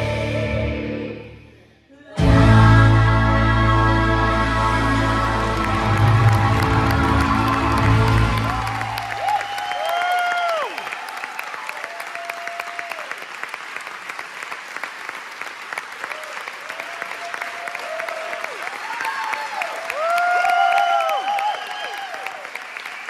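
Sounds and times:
audience applauding: 4.5s - 23.0s
people whooping and cheering: 5.1s - 13.4s, 16.0s - 23.0s.

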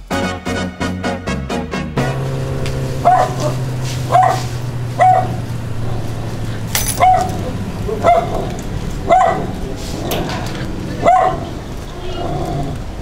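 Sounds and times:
steady low hum: 2.0s - 13.0s
dog barking: 2.9s - 6.1s, 6.9s - 9.6s, 11.0s - 12.4s.

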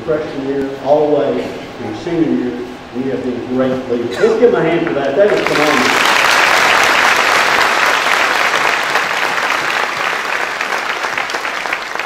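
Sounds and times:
large audience applauding: 5.0s - 12.0s.

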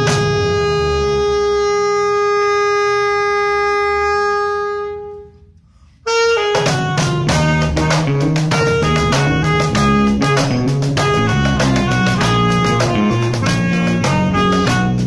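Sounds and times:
alto saxophone: 0.0s - 15.0s
electric bass: 0.0s - 15.0s
cajon strokes: 6.4s - 15.0s.

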